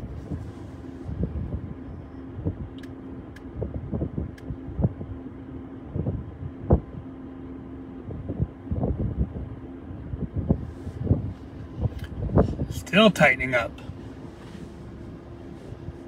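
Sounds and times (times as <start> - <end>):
wind buffeting microphone: 0.0 - 2.8, 3.4 - 5.2, 5.8 - 7.0, 8.0 - 12.8
steady low hum: 0.0 - 16.0.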